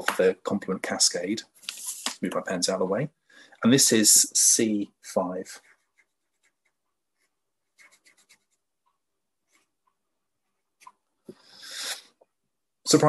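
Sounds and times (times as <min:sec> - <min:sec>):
felt-tip pen scratching on paper: 0:05.6 - 0:08.6.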